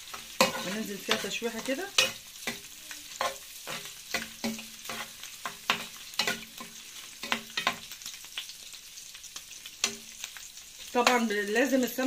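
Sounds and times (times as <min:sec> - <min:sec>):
metal spoon scraping a pan: 0:00.0 - 0:08.2, 0:09.6 - 0:11.9
chicken sizzling in a frying pan: 0:00.0 - 0:12.0.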